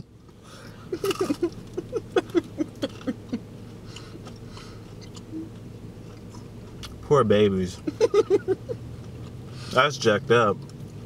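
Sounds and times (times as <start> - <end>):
muffled hums through full mouth: 0.0 - 7.1
low steady hum: 0.0 - 11.0.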